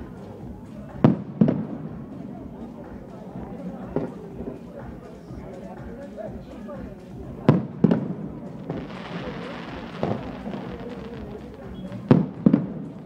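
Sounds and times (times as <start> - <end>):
steady hiss: 8.6 - 13.0
firework shells bursting: 8.7 - 12.8.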